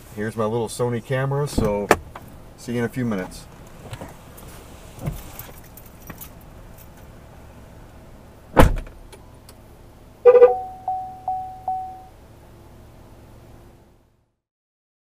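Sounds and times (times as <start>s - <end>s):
keys jangling: 5.3s - 7.1s
truck door slamming shut: 8.5s - 9.0s
steady electronic tone: 10.2s - 12.2s.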